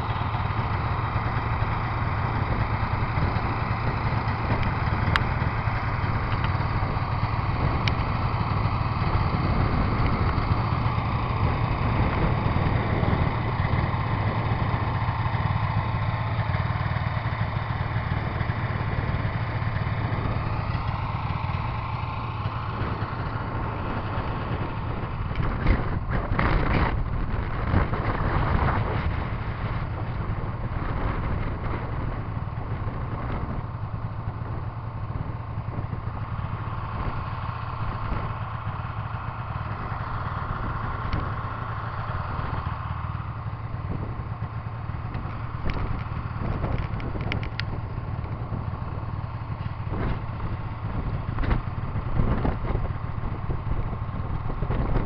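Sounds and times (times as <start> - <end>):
snowmobile engine running: 0.0 - 55.0.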